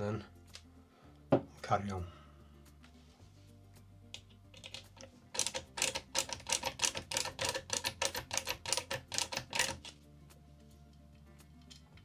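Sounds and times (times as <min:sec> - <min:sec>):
screwdriver clicking: 0:04.6 - 0:10.0.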